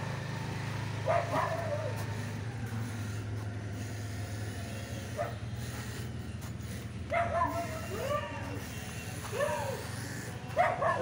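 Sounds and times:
dog barking: 1.0 - 2.0, 5.2 - 5.4, 7.1 - 8.5, 10.5 - 11.0.

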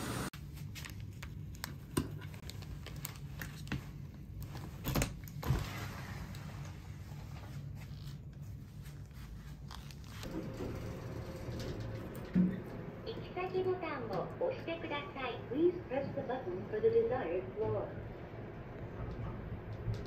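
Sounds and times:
low hum: 10.0 - 20.0.

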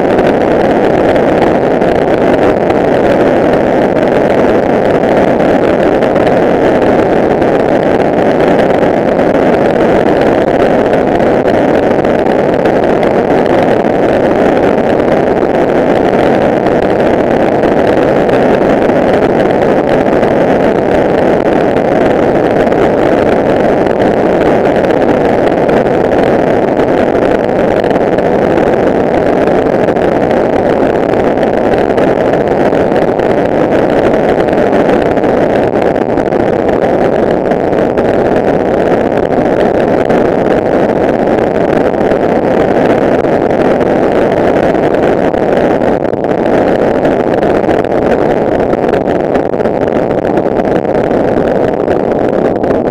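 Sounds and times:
wind rushing over microphone: 0.0 - 52.9.

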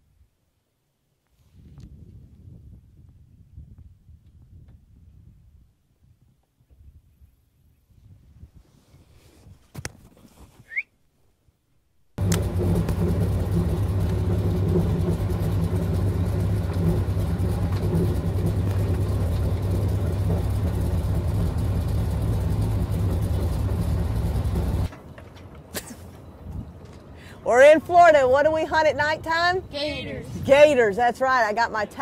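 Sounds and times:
engine running: 12.2 - 27.1.

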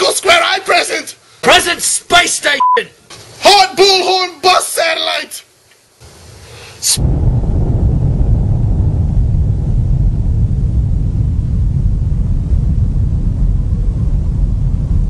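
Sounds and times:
explosion low rumble: 7.0 - 15.0.

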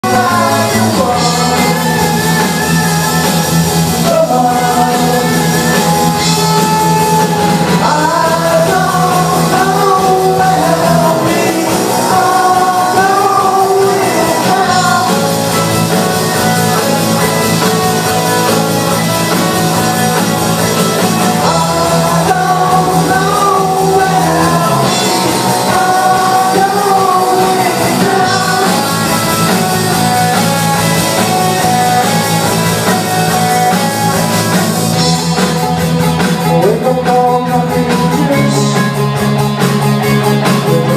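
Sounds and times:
person singing: 0.0 - 39.4, 40.0 - 40.9
bass line: 0.0 - 40.9
guitar: 0.0 - 40.9.

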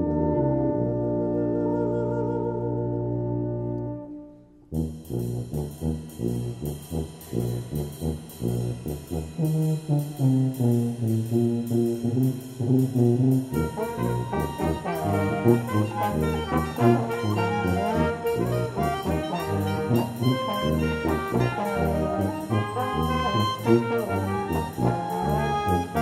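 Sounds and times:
low accented wind band notes: 0.0 - 26.0
higher instruments melody: 13.6 - 26.0.

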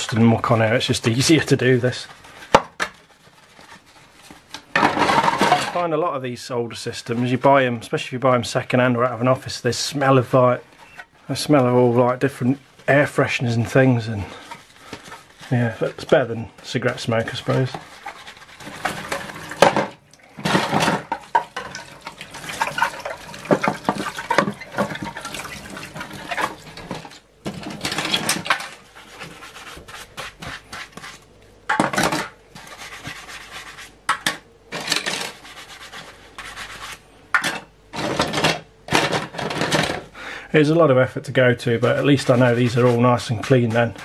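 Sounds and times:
sponge rubbing plastic: 0.0 - 4.7, 9.2 - 19.6, 28.0 - 31.3, 32.5 - 34.1, 35.2 - 37.0, 41.4 - 44.0
plastic pieces clattering in sink: 4.6 - 5.9, 17.4 - 28.8, 34.2 - 35.4, 37.4 - 40.1.

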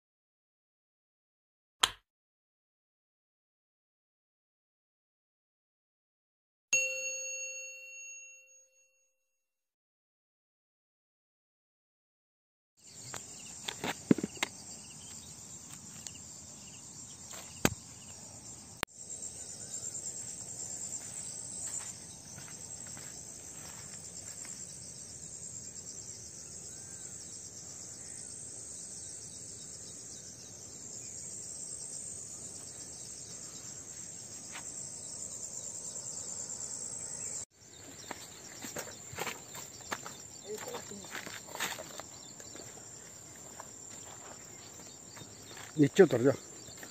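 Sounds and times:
insects chirring: 12.8 - 46.9.

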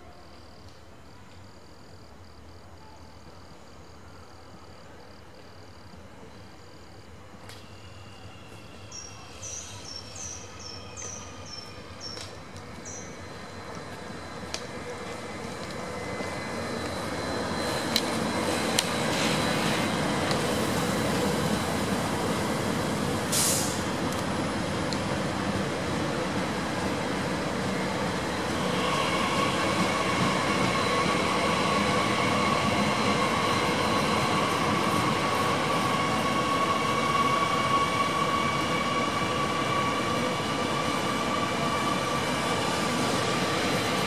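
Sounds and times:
electric train passing: 6.2 - 44.0
short hiss: 23.3 - 23.9.

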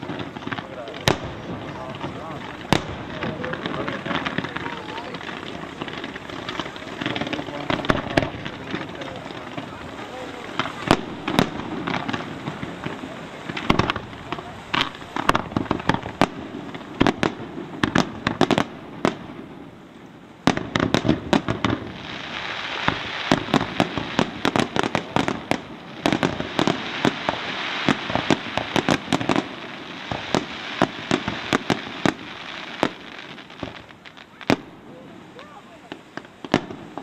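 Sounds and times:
firework shells bursting: 0.0 - 19.5, 20.4 - 34.8
rushing hiss: 20.5 - 37.0.

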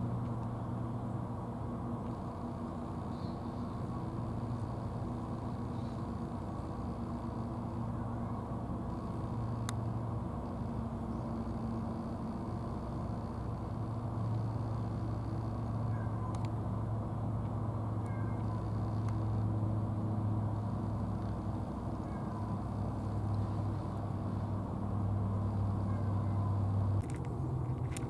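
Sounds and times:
low engine-like hum: 0.0 - 28.0
cats meowing faintly: 7.1 - 9.2, 15.6 - 16.6, 18.0 - 19.4, 21.2 - 24.5, 25.2 - 27.0.

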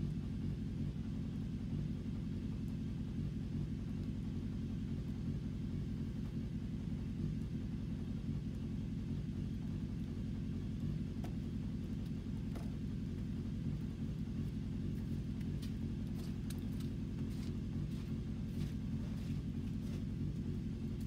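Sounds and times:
low rumble: 10.7 - 21.0.

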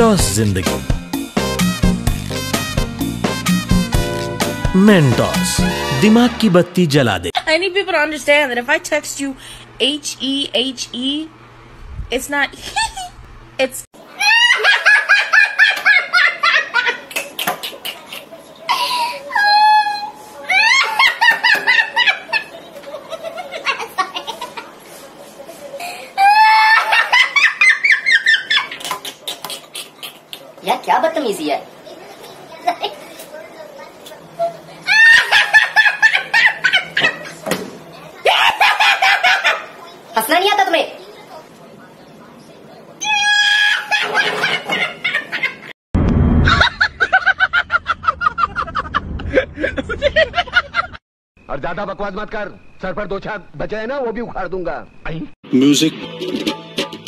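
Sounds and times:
woman laughing: 12.5 - 13.2, 34.9 - 37.4, 46.6 - 51.0
high-pitched cackling laugh: 14.2 - 24.7, 26.2 - 30.5, 34.8 - 37.4, 38.2 - 39.8, 43.2 - 45.7, 46.5 - 51.0
low rumble: 46.0 - 50.6.

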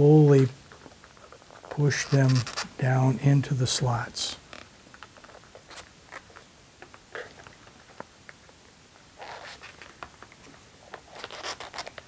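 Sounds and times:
scraping rustle: 0.9 - 3.1.

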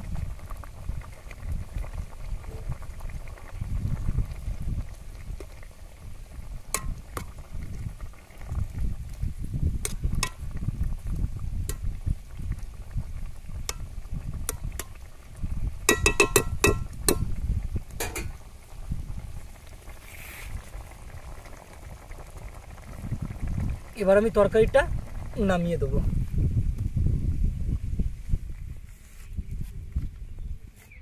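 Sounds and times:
metal spoon clinking on pot: 15.9 - 17.2, 18.0 - 18.3
low rumble: 24.7 - 28.8.

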